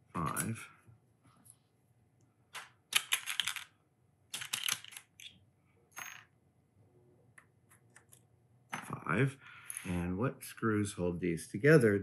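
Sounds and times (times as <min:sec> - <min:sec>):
small metal parts clinking: 0:04.3 - 0:05.3.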